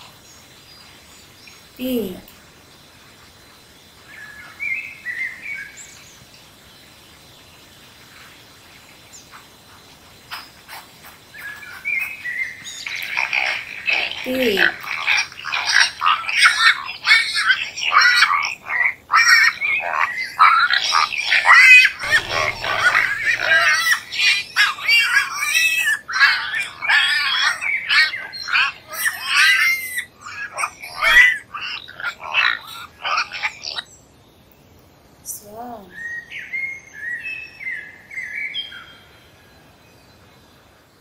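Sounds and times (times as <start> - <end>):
bird chirps: 8.9 - 34.6
pigs squealing: 12.9 - 33.8.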